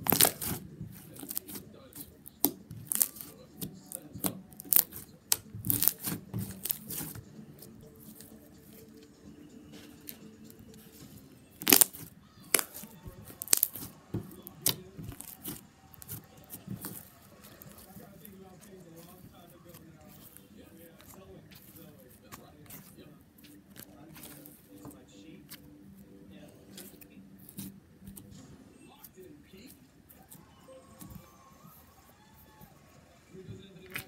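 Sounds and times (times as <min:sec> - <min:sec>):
slime clicking and popping: 0:00.0 - 0:01.6, 0:02.2 - 0:07.2, 0:11.5 - 0:13.9, 0:14.5 - 0:16.2.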